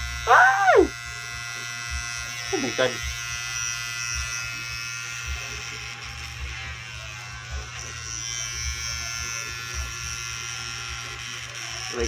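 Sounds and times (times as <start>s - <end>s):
electric hair clipper buzzing: 0.0s - 12.0s.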